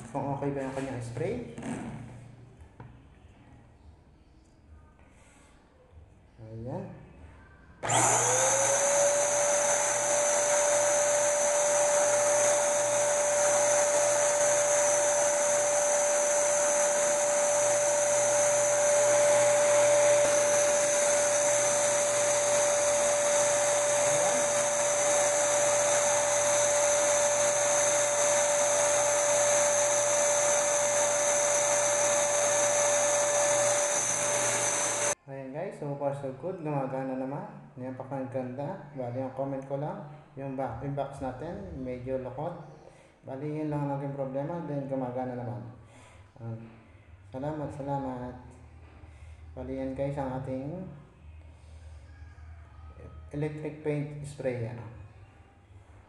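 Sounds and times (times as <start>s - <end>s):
paint sprayer blower whining and hissing: 7.8s - 35.2s.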